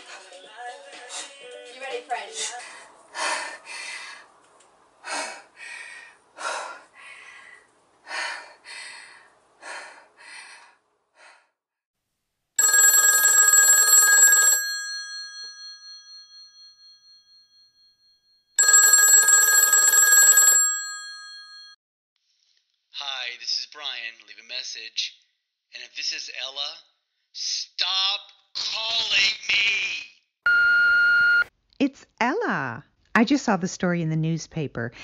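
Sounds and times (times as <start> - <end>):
telephone bell ringing: 12.6 - 21.8.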